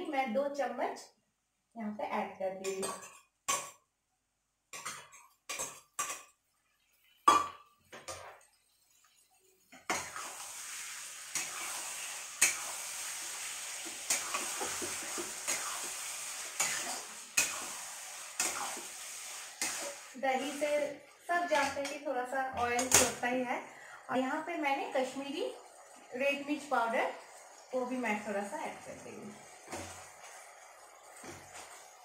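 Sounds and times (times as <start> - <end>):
frying sizzle: 2.2 - 3.8, 4.5 - 32.0
spatula scraping steel pot: 8.0 - 20.9.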